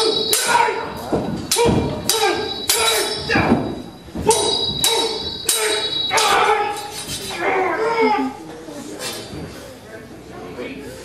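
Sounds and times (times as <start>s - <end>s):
swords clashing: 0.0s - 8.2s.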